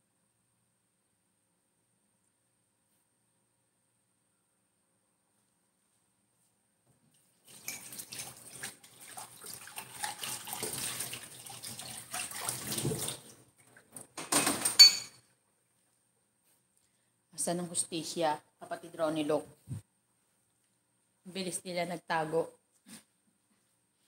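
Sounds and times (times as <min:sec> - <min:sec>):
water running and splashing: 0:07.4 - 0:14.0.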